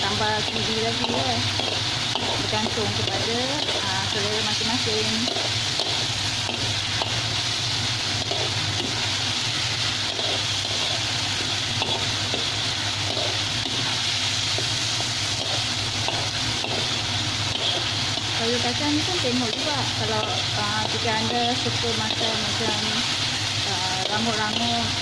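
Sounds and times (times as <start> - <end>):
beans sizzling in a wok: 0.0 - 25.0
metal spatula scraping wok: 8.1 - 25.0.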